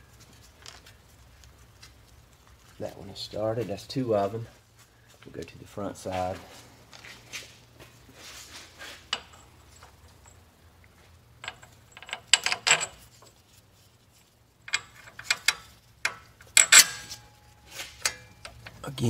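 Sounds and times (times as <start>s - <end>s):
metal bolts clicking and clinking: 9.1s - 10.4s, 11.4s - 13.4s, 14.6s - 18.8s.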